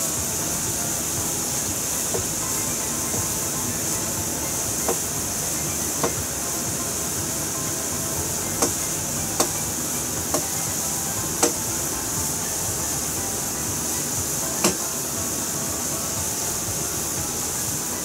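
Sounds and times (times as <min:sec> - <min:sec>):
broth boiling with hiss: 0:00.0 - 0:18.0
sharp pops: 0:08.6 - 0:12.4.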